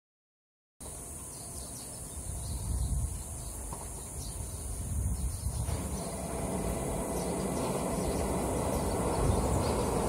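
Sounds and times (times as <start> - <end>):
insects droning: 0.8 - 10.0
low uneven rumble: 4.4 - 10.0.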